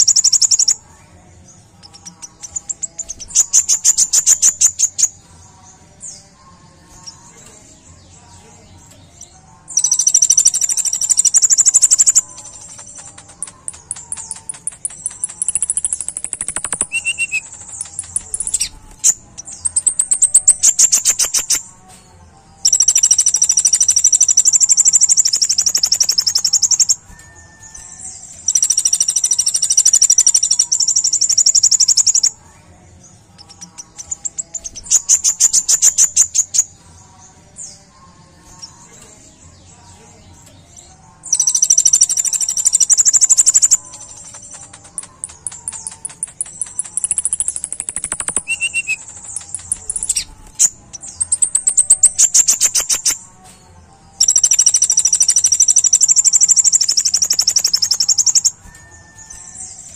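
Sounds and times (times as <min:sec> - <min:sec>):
bird singing high rapid trills: 0:00.0 - 0:59.9.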